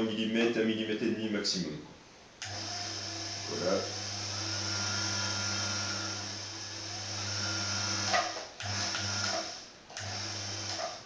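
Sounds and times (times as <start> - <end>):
electric motor humming: 2.4 - 11.0.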